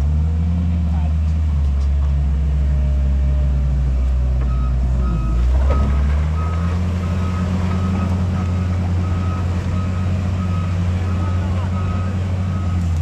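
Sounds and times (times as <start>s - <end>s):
diesel engine running: 0.0s - 13.0s
reversing alarm beeping: 4.5s - 13.0s.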